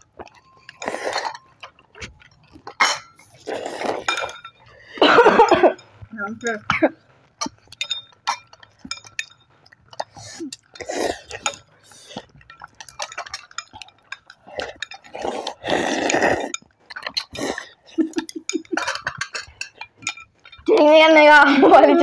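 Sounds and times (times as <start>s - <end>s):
chopsticks clicking on glass bowls: 0.1s - 4.7s, 7.3s - 20.9s
slurping noodles: 0.6s - 1.4s, 3.2s - 4.3s, 10.0s - 12.4s, 14.3s - 18.0s.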